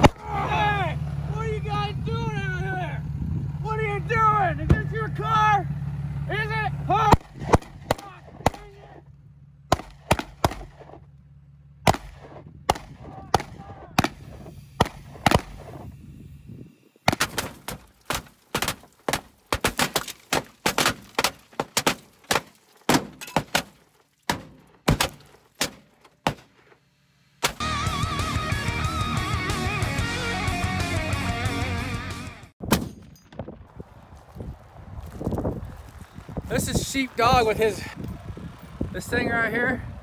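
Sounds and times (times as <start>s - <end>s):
bullets punching through glass: 9.7s - 11.0s, 17.1s - 26.5s
pistol shots: 9.7s - 11.0s, 11.8s - 15.8s.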